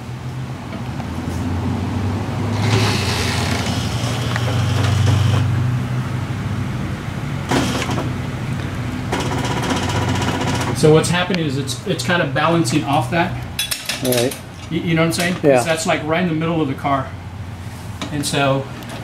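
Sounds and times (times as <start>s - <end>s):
hydraulic jack hissing: 2.5s - 5.5s, 7.5s - 8.1s.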